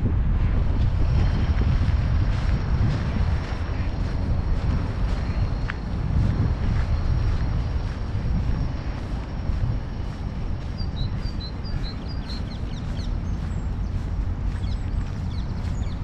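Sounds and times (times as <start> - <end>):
steady low rumble: 0.0 - 16.0
footsteps on gravel: 0.6 - 16.0
small bird chirping: 8.9 - 16.0.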